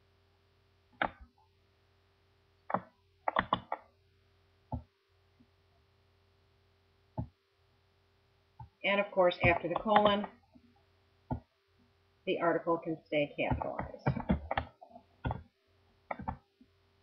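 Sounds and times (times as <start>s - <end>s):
faint steady hum: 0.0s - 17.0s
computer mouse clicking: 2.7s - 3.9s, 13.5s - 15.5s, 16.1s - 16.4s.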